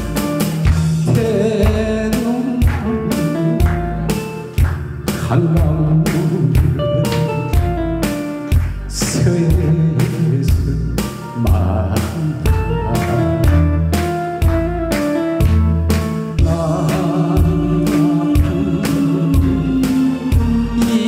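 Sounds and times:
backing track with drum beat and bass: 0.0 - 21.0
man singing into a microphone: 1.0 - 4.0, 5.1 - 7.9, 8.9 - 13.7, 16.4 - 21.0.

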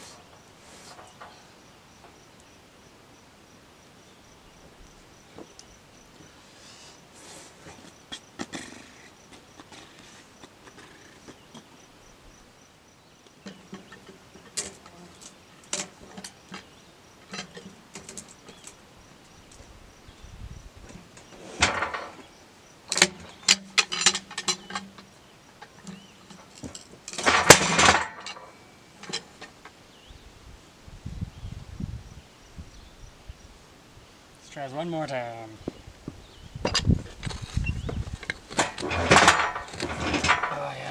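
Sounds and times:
log knocking and scraping on steel: 13.4 - 18.8, 20.8 - 22.3, 22.9 - 29.8, 35.1 - 40.9.

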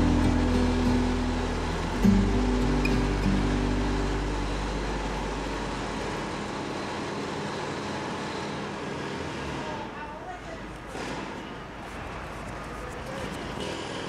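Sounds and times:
background music: 0.0 - 6.3
city street traffic: 0.0 - 14.0.

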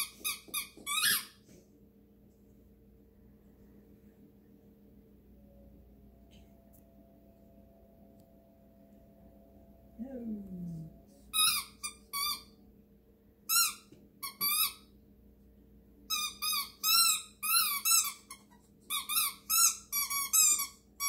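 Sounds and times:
squeaky toy squeaking: 0.0 - 1.4, 11.3 - 12.6, 13.5 - 14.9, 16.1 - 20.8.

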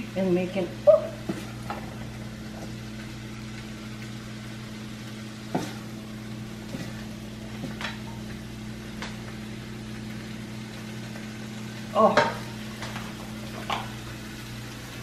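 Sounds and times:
pan sizzling: 0.0 - 15.0
steady low hum: 0.0 - 15.0
spatula scraping frying pan: 5.4 - 8.2.

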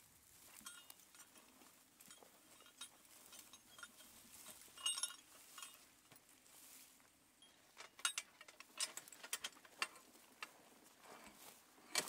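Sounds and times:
harness chains clinking: 0.4 - 6.8, 7.4 - 10.1.

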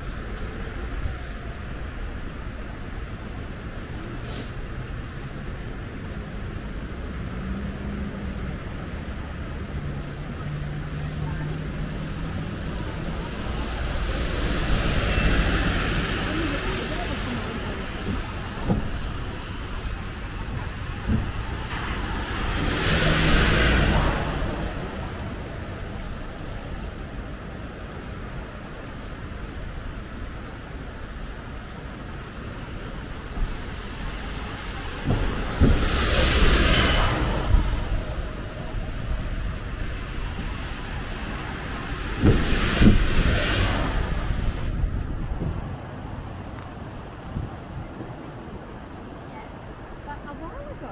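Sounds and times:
road traffic on wet street: 0.0 - 50.9
tyre hiss: 4.2 - 4.6.

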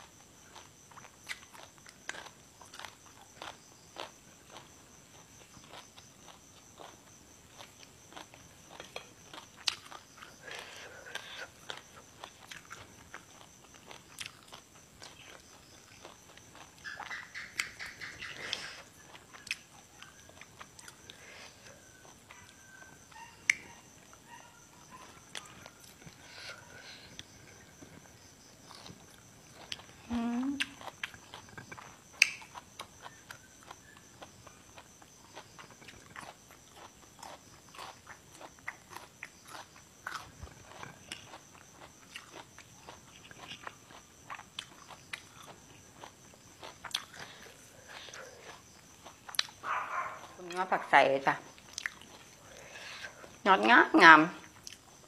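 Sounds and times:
chewing crisp vegetables: 0.0 - 55.0
wet mouth clicks: 30.6 - 32.5.

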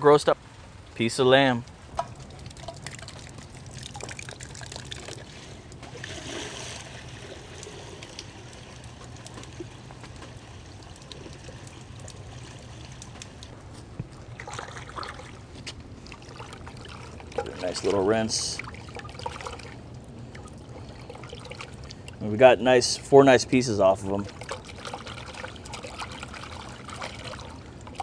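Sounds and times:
water sloshing in glass dish: 2.0 - 22.2.

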